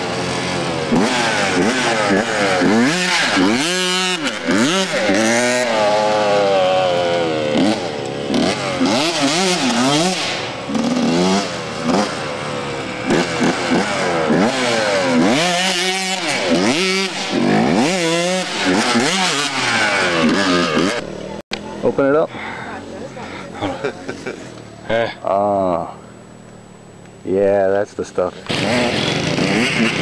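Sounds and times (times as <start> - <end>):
dirt bike engine revving: 0.0 - 22.1, 28.3 - 30.0.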